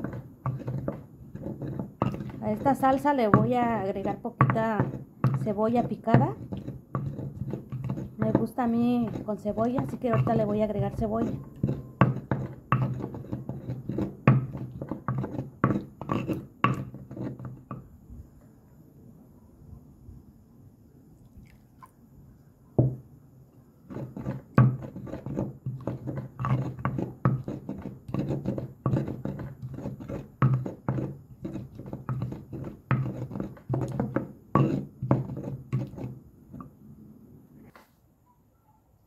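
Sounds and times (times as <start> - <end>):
stone pestle knocking in mortar: 0.0 - 17.9, 23.9 - 36.7.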